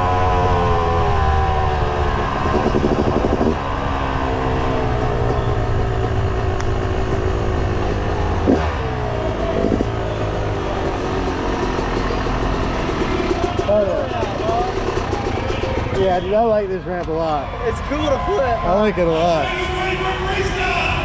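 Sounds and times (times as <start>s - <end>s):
dirt bike engine revving: 0.0s - 16.7s.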